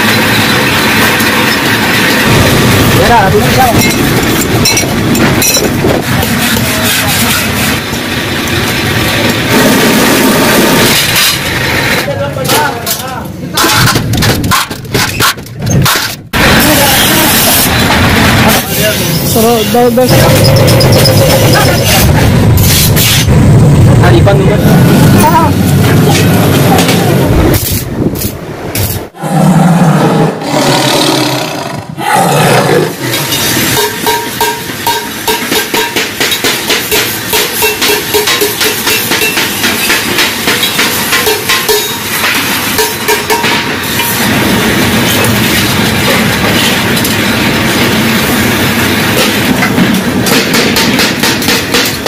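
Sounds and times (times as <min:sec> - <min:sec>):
lion roar: 0:29.2 - 0:33.0.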